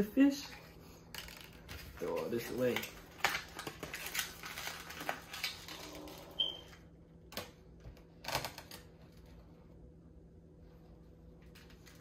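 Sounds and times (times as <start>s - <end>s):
plastic packaging crinkling: 1.2s - 6.7s.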